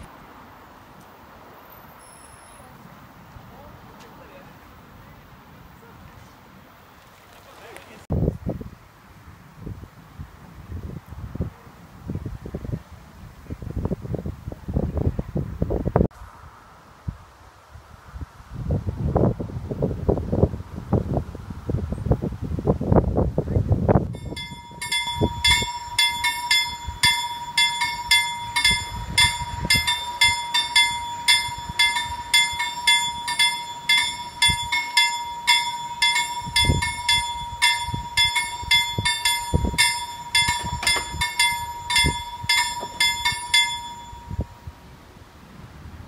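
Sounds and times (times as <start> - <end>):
wind thumps on microphone: 8.1 - 8.8, 18.1 - 44.6
level crossing warning bell: 24.2 - 44.8
steady high tone: 24.2 - 44.8.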